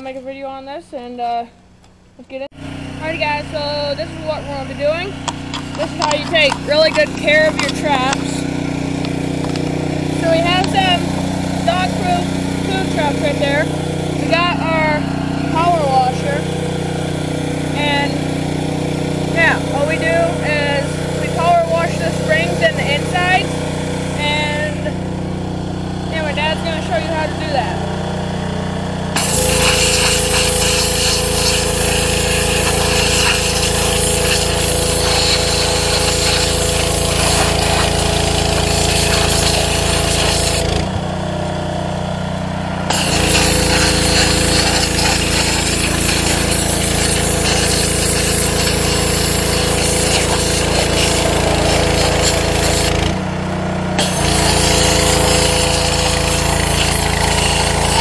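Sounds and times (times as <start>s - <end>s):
pressure washer engine running: 2.5s - 58.0s
water jet spray hissing: 3.0s - 25.3s, 29.1s - 40.9s, 42.9s - 53.2s, 54.0s - 58.0s.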